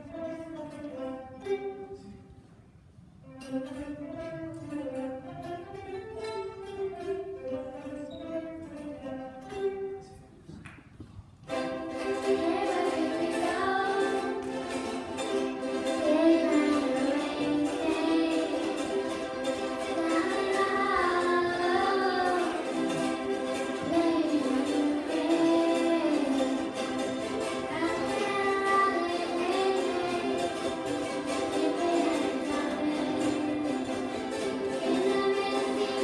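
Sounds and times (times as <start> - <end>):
ukulele strumming chords: 0.0 - 10.5, 11.4 - 36.0
girls singing: 11.5 - 36.0.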